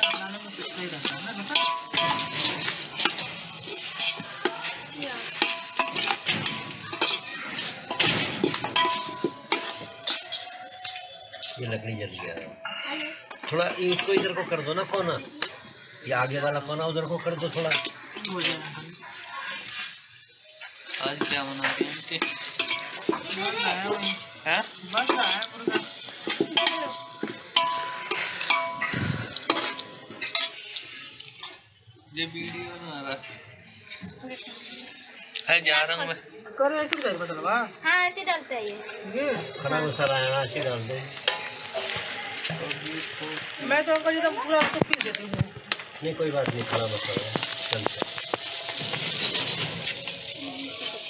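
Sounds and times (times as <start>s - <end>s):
ladle scraping and knocking a pot: 0.0s - 11.5s
metal ladle scraping pot: 0.0s - 12.6s, 20.8s - 31.0s, 46.7s - 51.0s
metal pot ringing: 0.0s - 12.6s, 21.1s - 30.8s, 41.0s - 42.2s
food sizzling in oil: 0.0s - 51.0s
metallic ring from pot: 7.8s - 10.7s, 26.6s - 30.6s.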